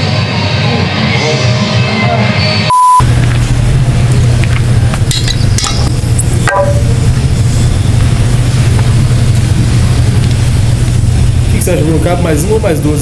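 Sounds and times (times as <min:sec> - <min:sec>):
steady low hum: 0:02.8 - 0:13.0.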